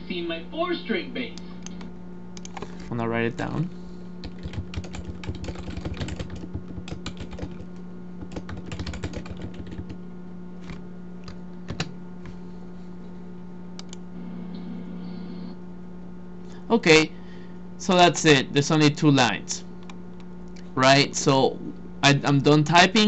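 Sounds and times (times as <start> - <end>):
steady low hum: 0.0 - 23.0
keyboard typing: 2.4 - 2.8, 4.2 - 10.0.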